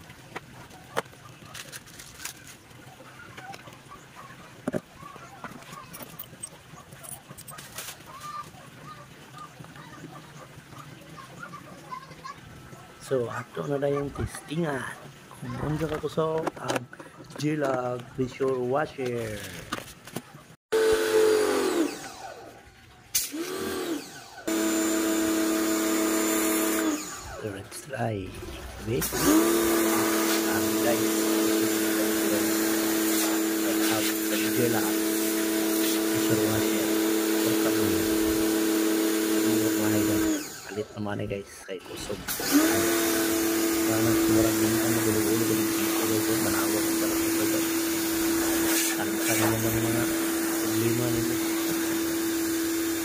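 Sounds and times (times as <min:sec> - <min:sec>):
pressure washer motor whine: 0:20.7 - 0:41.2, 0:41.8 - 0:53.0
hissing water jet: 0:20.8 - 0:53.0.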